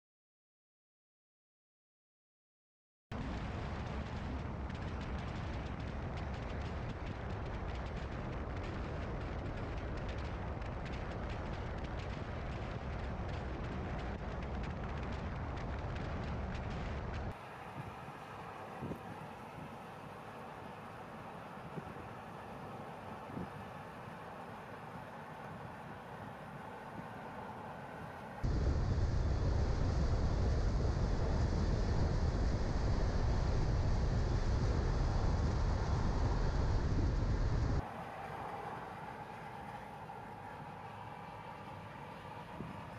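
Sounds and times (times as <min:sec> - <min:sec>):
car road and wind noise: 0:03.2 - 0:42.9
small crackles: 0:03.6 - 0:17.4.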